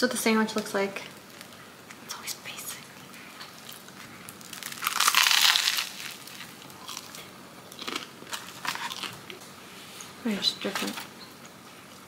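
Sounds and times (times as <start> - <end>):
crunchy bite into sandwich: 3.6 - 9.3.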